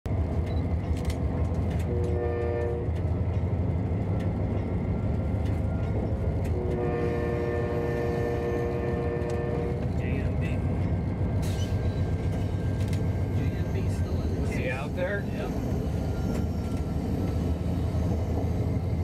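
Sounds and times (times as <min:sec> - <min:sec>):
low rumble of engine and wheels: 0:00.1 - 0:19.0
locomotive horn blasts: 0:01.8 - 0:03.1, 0:06.5 - 0:10.0.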